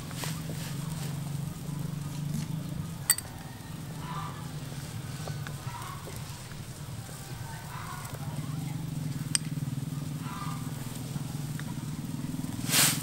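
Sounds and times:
metal spoon clinking on bowl: 0:03.1 - 0:03.4.

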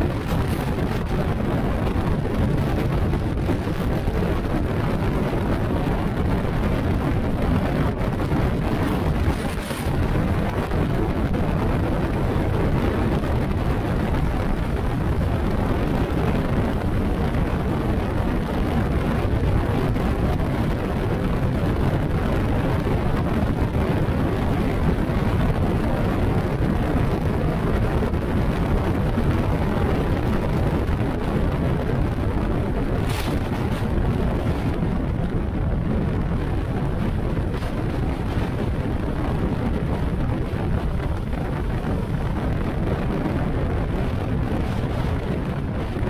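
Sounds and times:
wind rushing: 0:00.0 - 0:46.0.

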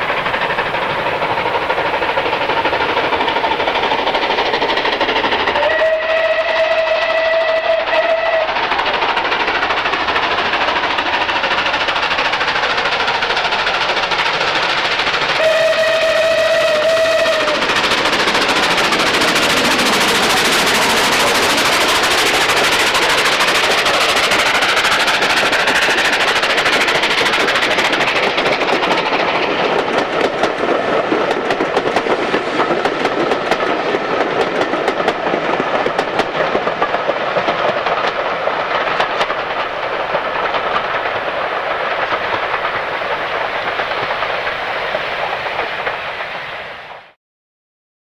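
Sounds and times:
steam locomotive exhaust: 0:00.0 - 0:47.2
wheels clicking over rail joints: 0:08.5 - 0:46.3.

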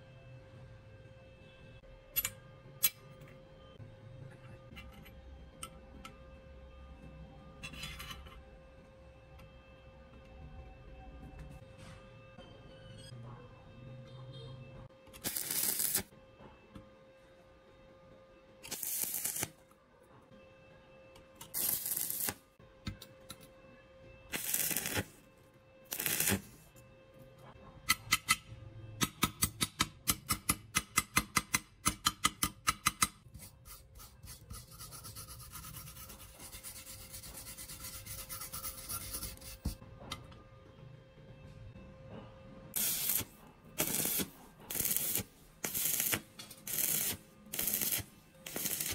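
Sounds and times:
welding arc bursts: 0:15.2 - 0:16.1, 0:18.7 - 0:19.6, 0:21.5 - 0:22.4, 0:24.3 - 0:25.1, 0:25.9 - 0:26.5, 0:42.8 - 0:48.9.

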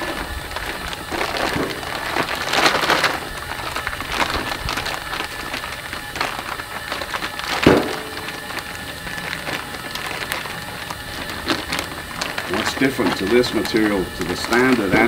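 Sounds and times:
plastic wrapping crinkling: 0:00.0 - 0:15.0.

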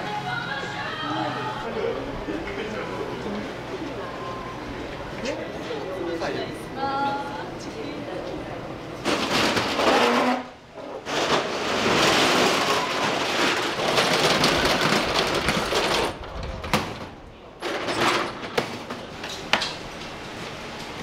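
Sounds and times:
metal roller shutter rattling: 0:09.0 - 0:21.0.

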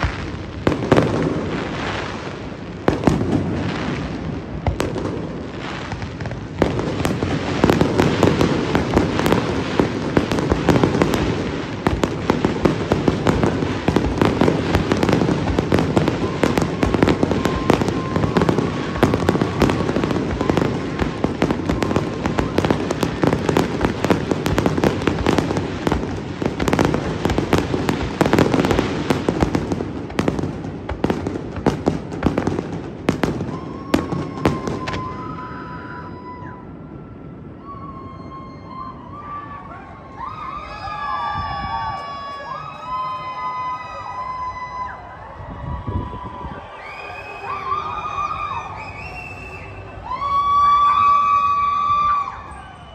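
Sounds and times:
fireworks bursting and crackling: 0:00.0 - 0:39.3.

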